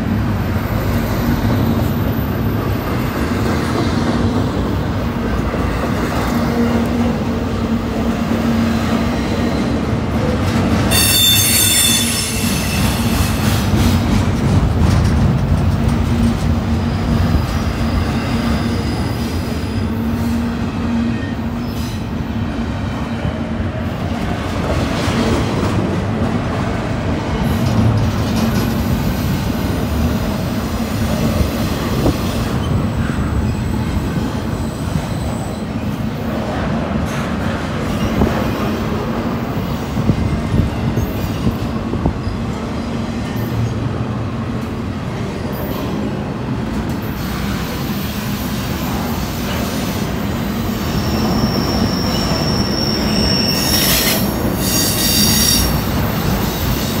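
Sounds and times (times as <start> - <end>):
freight train wheels rumbling: 0.0 - 57.0
train wheel squealing: 10.9 - 14.0, 17.2 - 22.1, 31.6 - 36.1, 47.0 - 57.0.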